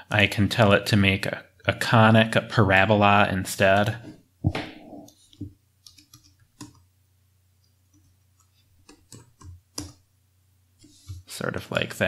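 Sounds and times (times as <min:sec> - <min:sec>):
keyboard and mouse clicks: 0:04.5 - 0:06.8, 0:07.6 - 0:10.0.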